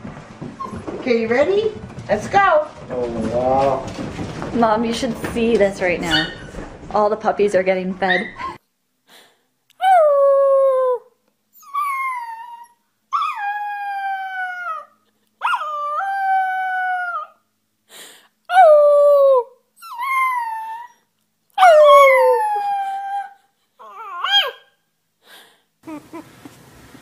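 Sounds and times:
puppy howling: 0:09.8 - 0:17.4, 0:18.5 - 0:21.0, 0:21.6 - 0:24.7.

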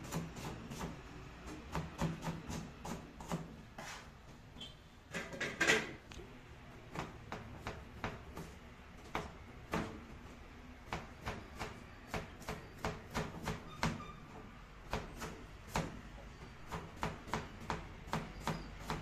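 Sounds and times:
knife chopping on plastic board: 0:00.0 - 0:03.5, 0:06.9 - 0:10.0, 0:10.8 - 0:14.0, 0:14.9 - 0:16.0, 0:16.7 - 0:19.0.

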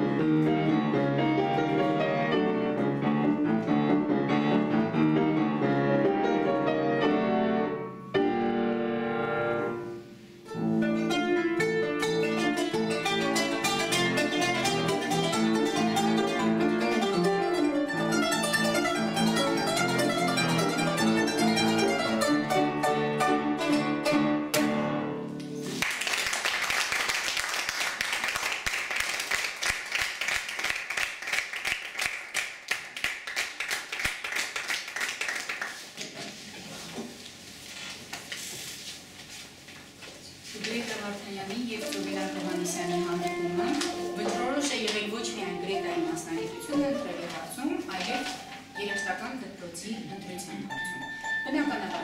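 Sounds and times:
piano chords: 0:00.0 - 0:25.4, 0:41.6 - 0:52.0
plucked zither notes: 0:10.5 - 0:25.4, 0:42.2 - 0:47.4, 0:48.0 - 0:52.0
applause: 0:25.7 - 0:36.0.

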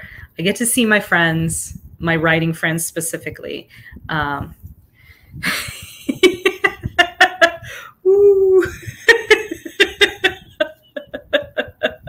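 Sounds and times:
woman laughing hard: 0:05.4 - 0:12.0.

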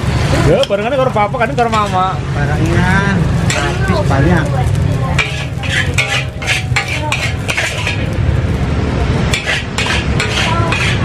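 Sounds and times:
metal spatula scraping wok: 0:00.4 - 0:11.0
steady low rumble: 0:01.0 - 0:09.5.

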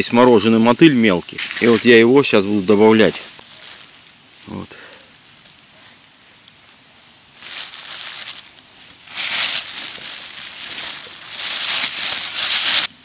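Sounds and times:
plastic bag crinkling: 0:01.6 - 0:05.7, 0:07.3 - 0:13.0
jacket sleeve brushing microphone: 0:09.0 - 0:12.9.

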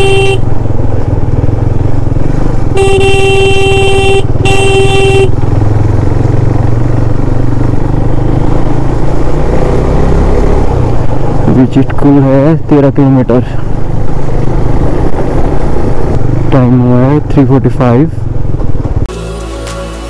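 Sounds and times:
vehicle horn honking: 0:00.0 - 0:00.5, 0:02.7 - 0:05.4
motorcycle engine and wind rumble: 0:00.0 - 0:19.1.

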